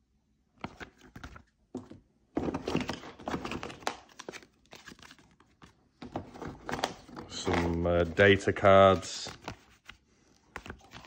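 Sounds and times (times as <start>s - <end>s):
paper rustling and scraping: 2.4s - 11.0s.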